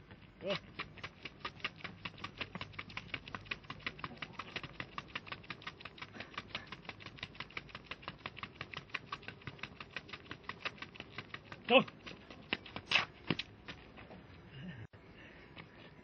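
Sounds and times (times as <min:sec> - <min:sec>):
sneakers tapping on rubber track: 0:06.9 - 0:14.2.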